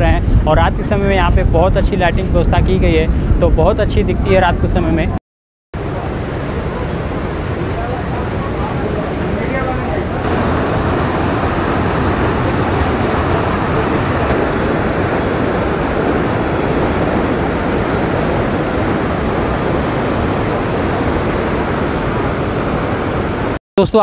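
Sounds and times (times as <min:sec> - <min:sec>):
river water rushing over a dam: 0:05.8 - 0:23.5.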